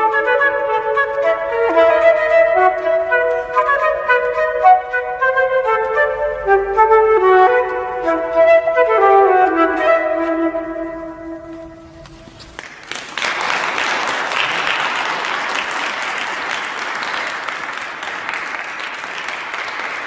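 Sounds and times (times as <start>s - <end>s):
audience applause: 12.5s - 20.0s.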